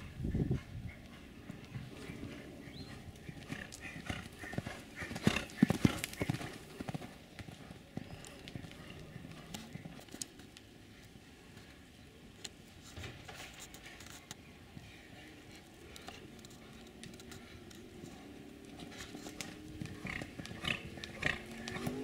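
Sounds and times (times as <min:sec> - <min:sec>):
hooves on sand: 0:00.0 - 0:10.2, 0:14.7 - 0:22.0.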